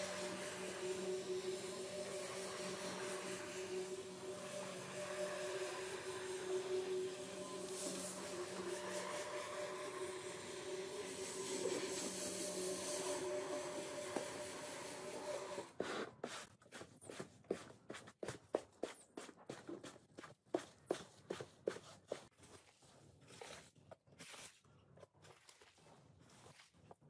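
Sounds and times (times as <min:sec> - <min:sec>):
floor scrubber humming: 0:00.0 - 0:16.0.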